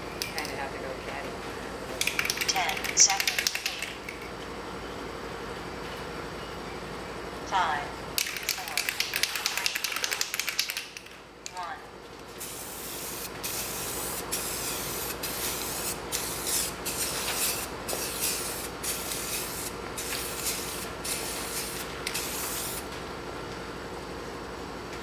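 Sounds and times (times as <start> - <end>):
spray hissing: 12.4 - 22.8.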